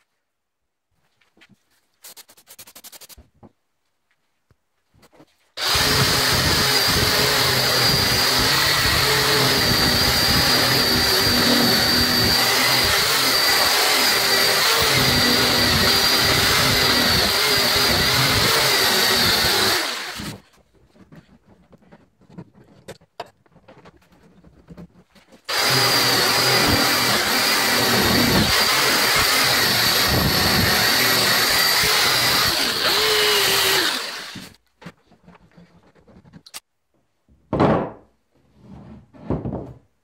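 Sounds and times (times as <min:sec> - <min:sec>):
power drill wire brush scrubbing metal: 0:05.6 - 0:20.5, 0:25.5 - 0:34.6.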